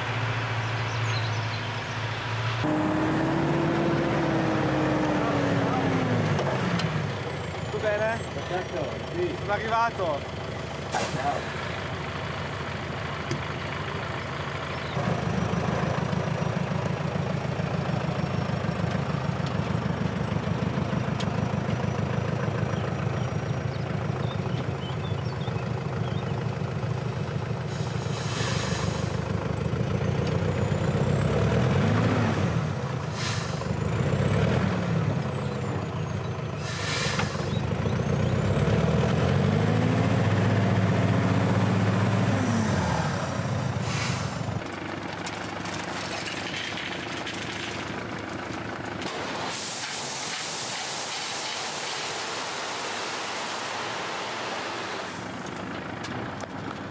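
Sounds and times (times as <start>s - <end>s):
truck engine running: 0.0s - 56.9s
short hisses: 33.1s - 33.6s, 36.6s - 37.5s, 43.8s - 44.5s.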